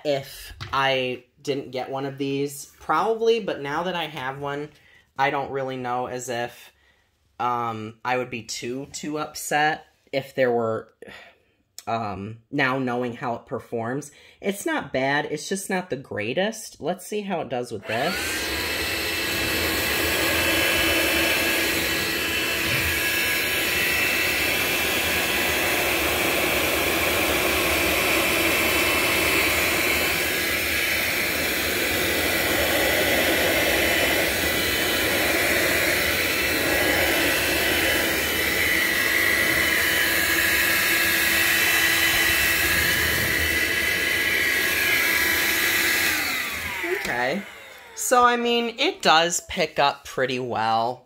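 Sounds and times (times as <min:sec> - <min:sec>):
vacuum cleaner running: 0:17.8 - 0:48.7.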